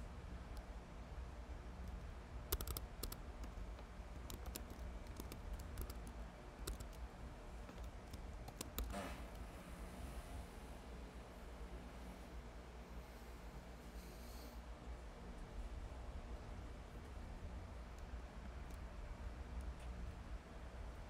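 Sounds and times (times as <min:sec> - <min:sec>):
faint low hum: 0:00.0 - 0:21.0
keyboard keystroke clicks: 0:02.5 - 0:03.2.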